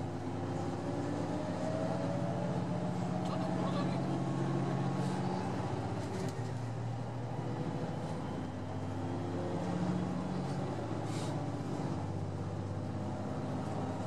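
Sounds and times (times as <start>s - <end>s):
diesel railcar engine working hard: 0.0s - 14.0s.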